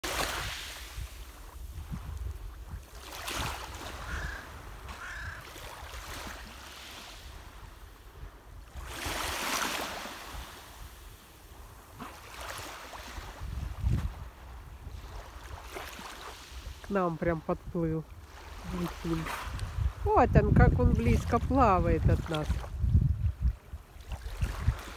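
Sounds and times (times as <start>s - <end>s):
small waves on pebble shore: 0.0s - 23.0s, 23.6s - 24.9s
wind rumbling on microphone: 0.0s - 24.9s
crow cawing: 4.0s - 5.6s.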